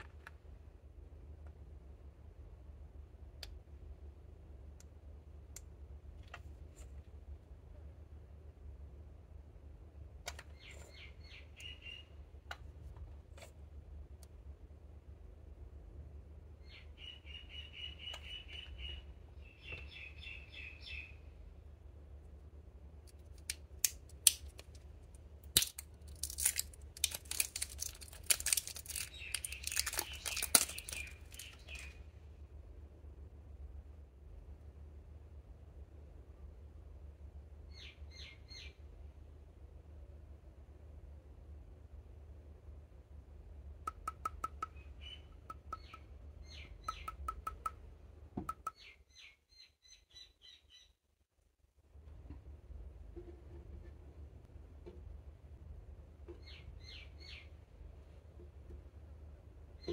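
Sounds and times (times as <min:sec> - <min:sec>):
small bird chirping: 0:10.3 - 0:12.4, 0:16.5 - 0:21.4, 0:27.3 - 0:32.0, 0:37.7 - 0:38.9, 0:43.9 - 0:47.8, 0:48.5 - 0:51.0, 0:56.4 - 0:57.7
plastic shrink wrap crinkling: 0:25.6 - 0:31.8.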